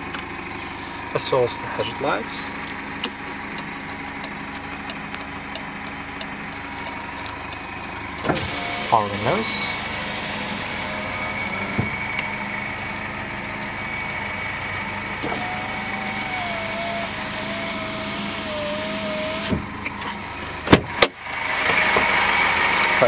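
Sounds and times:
diesel engine idling: 0:00.0 - 0:23.0
power window motor whining: 0:06.8 - 0:23.0.

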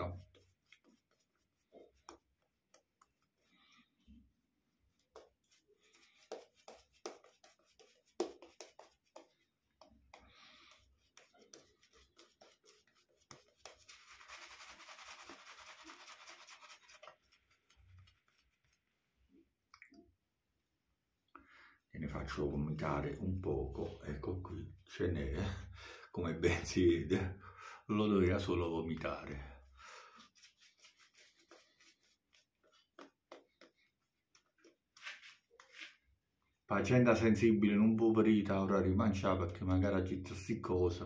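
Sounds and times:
shaving brush rubbing on soap: 0:00.0 - 0:19.1, 0:30.0 - 0:36.0.

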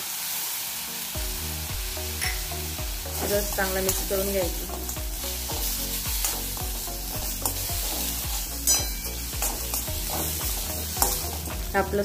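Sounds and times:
metal spoon scraping pan: 0:03.1 - 0:11.5.

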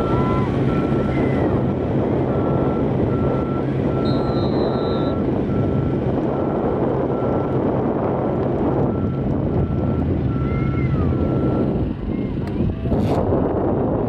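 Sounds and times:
engine hum and rush: 0:00.0 - 0:14.0
repeating electronic beep: 0:02.4 - 0:05.9.

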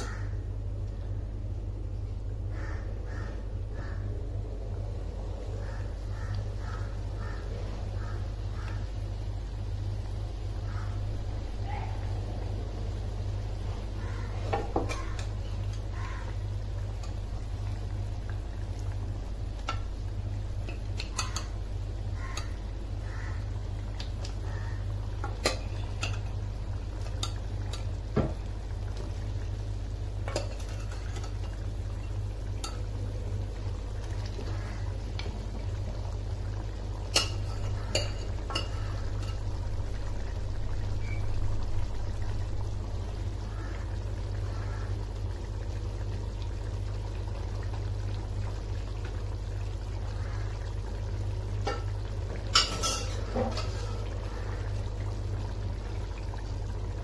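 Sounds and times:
curry bubbling in pan: 0:00.0 - 0:57.0
low hum: 0:00.0 - 0:57.0
ladle clinking against pan: 0:52.5 - 0:53.7.

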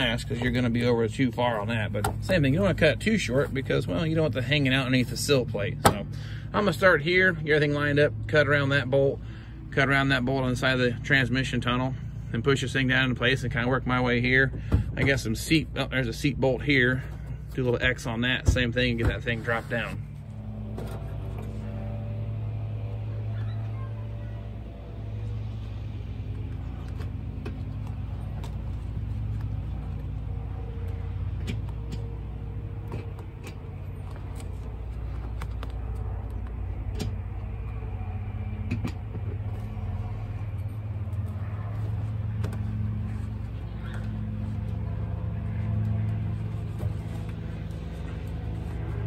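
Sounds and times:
motor hum: 0:17.1 - 0:49.0
carpet rustling and clicks: 0:26.3 - 0:37.6.

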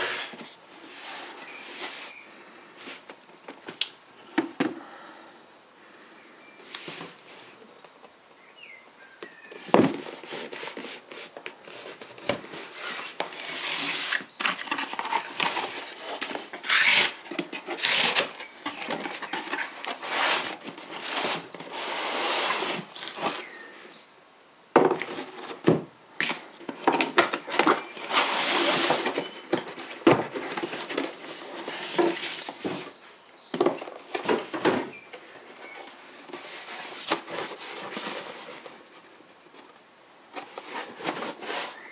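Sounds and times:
cardboard box scraping and rustling: 0:00.0 - 0:02.2, 0:09.6 - 0:23.6, 0:25.0 - 0:33.1, 0:33.7 - 0:39.2, 0:40.3 - 0:41.9.

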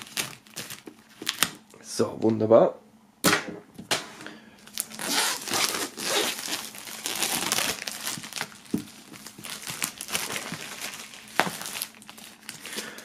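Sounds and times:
plastic film crinkling: 0:00.0 - 0:01.8, 0:04.6 - 0:13.0.

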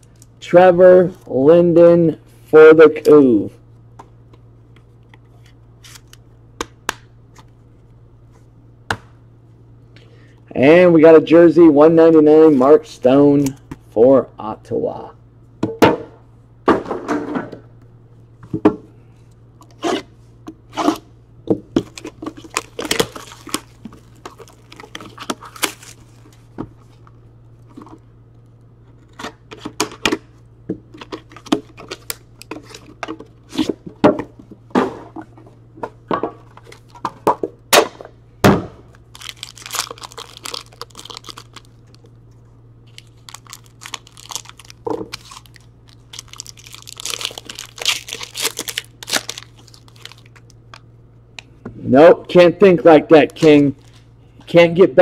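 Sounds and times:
foil and cardboard crinkling: 0:21.8 - 0:26.4, 0:39.1 - 0:42.1, 0:42.8 - 0:50.5.

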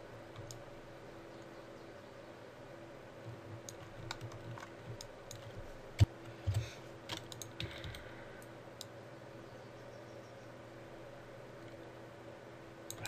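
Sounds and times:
faint steady hum: 0:00.0 - 0:13.0
mouse clicking: 0:00.3 - 0:00.6, 0:03.6 - 0:08.9
computer keyboard clicking: 0:03.6 - 0:05.6, 0:06.5 - 0:08.1.

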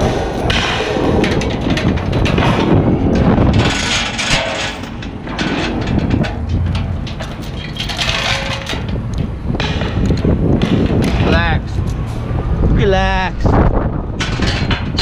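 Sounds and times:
steel chain rattling and clanking: 0:00.0 - 0:10.4, 0:14.2 - 0:15.0
diesel crane engine rumble: 0:00.0 - 0:15.0.

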